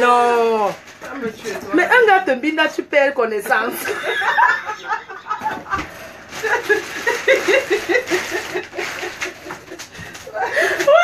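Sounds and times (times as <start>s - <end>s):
person laughing: 3.9s - 5.8s.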